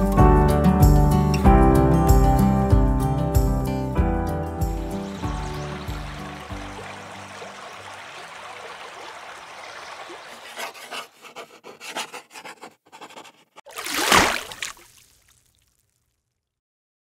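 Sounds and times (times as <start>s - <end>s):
stream water flowing: 4.8s - 11.2s, 13.7s - 15.6s
scratchy strokes: 10.2s - 13.7s.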